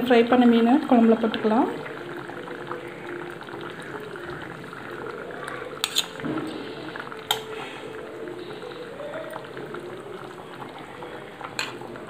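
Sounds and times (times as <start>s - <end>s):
gravy bubbling in a pan: 0.0s - 12.0s
metal utensils clinking on pan: 5.8s - 6.2s, 11.6s - 11.8s.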